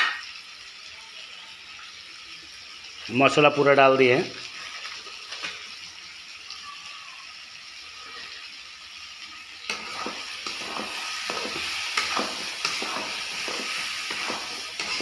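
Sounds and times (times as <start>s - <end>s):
food sizzling in a pan: 0.0s - 15.0s
spatula scraping a pan: 9.7s - 15.0s.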